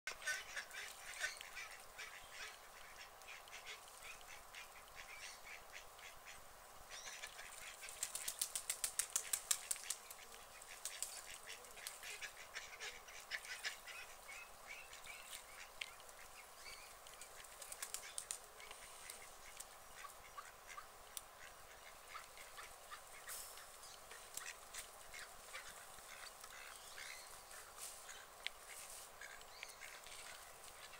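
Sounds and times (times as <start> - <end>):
ducks quacking softly: 0.1 - 30.9
ducks dabbling clicks: 7.7 - 12.2, 24.1 - 26.7.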